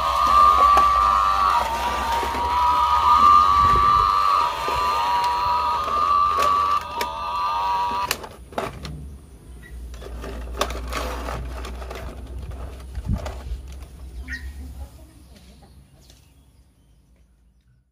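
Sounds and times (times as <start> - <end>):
toy electronic tone: 0.0 - 8.2
plastic toy clicks and knocks: 4.6 - 7.2.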